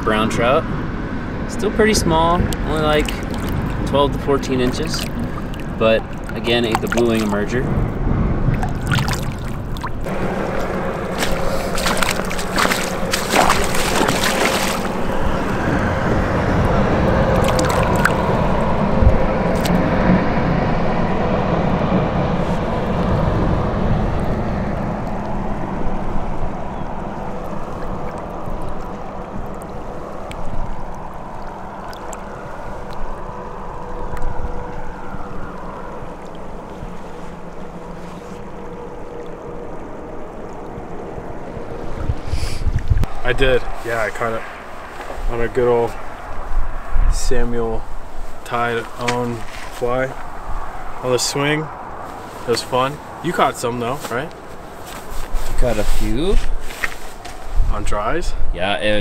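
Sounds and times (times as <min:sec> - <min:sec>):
water sloshing and gurgling: 0:02.1 - 0:57.8
fish splashing in net: 0:03.0 - 0:03.8, 0:08.5 - 0:15.6, 0:17.4 - 0:18.5.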